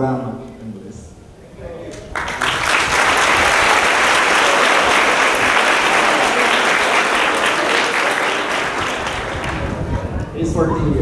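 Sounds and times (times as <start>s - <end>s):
audience applause: 1.9s - 10.4s.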